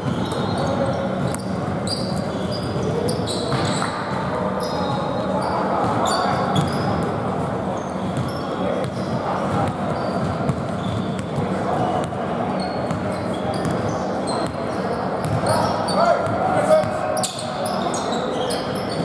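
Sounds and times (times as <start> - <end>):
sneakers squeaking: 0.0 - 19.0
basketball bouncing: 8.2 - 12.2, 15.2 - 15.4.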